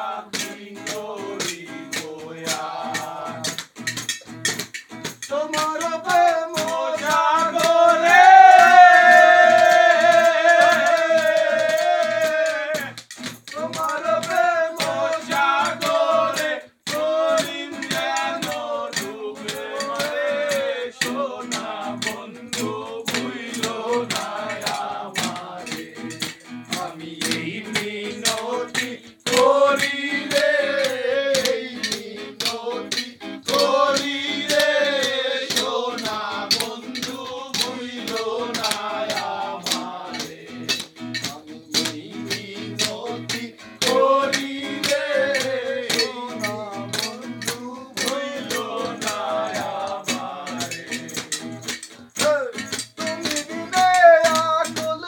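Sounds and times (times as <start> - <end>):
men singing together: 0.0 - 3.8, 5.2 - 55.0
strummed acoustic guitar: 0.0 - 55.0.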